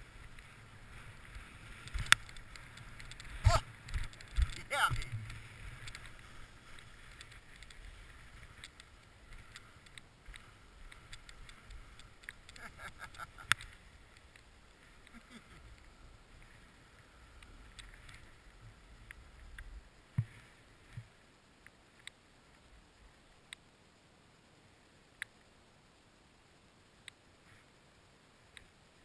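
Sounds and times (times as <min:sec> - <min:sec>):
skis scraping over snow: 0:00.0 - 0:21.3
small clicks and chatter: 0:00.2 - 0:20.3.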